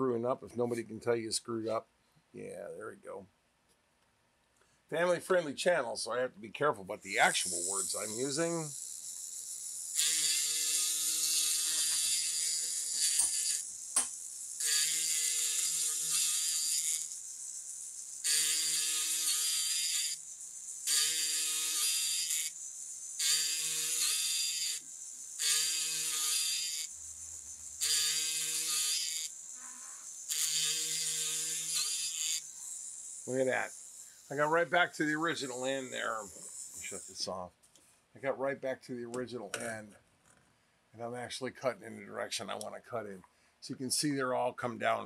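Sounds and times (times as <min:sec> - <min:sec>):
powered cutter buzzing into wood: 0:07.1 - 0:37.3.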